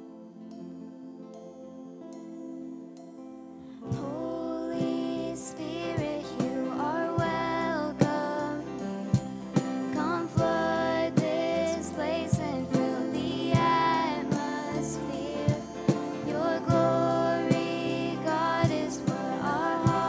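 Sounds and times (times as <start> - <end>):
women singing: 3.9 - 20.0
electric bass: 5.1 - 20.0.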